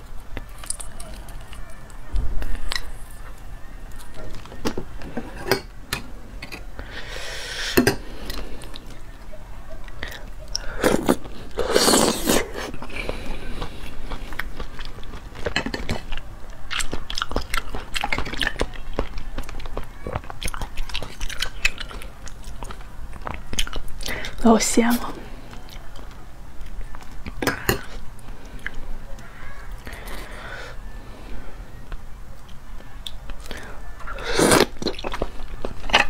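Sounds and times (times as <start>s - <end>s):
wet chewing: 7.8s - 24.4s, 25.3s - 30.4s, 31.9s - 36.0s
loud slurp: 10.8s - 12.8s, 34.2s - 34.8s.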